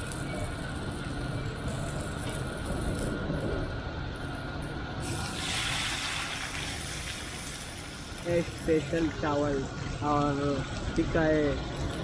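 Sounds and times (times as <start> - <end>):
tomatoes sizzling in hot oil: 5.0 - 12.0.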